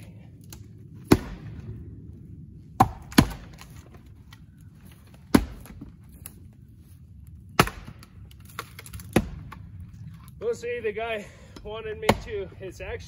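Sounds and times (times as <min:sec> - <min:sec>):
axe striking firewood: 0:00.5 - 0:01.7, 0:02.8 - 0:04.0, 0:05.1 - 0:06.4, 0:07.5 - 0:09.6, 0:12.0 - 0:12.5.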